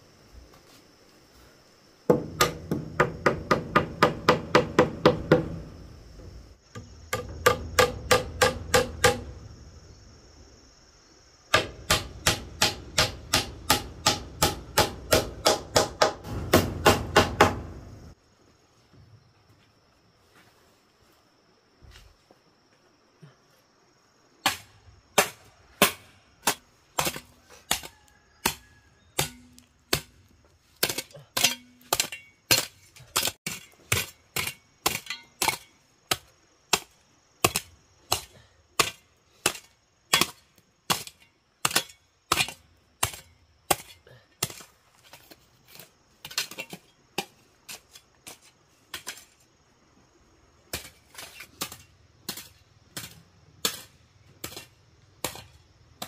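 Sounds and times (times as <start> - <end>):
hammer striking nails into wood: 2.1 - 5.6, 7.1 - 9.3, 11.5 - 17.7.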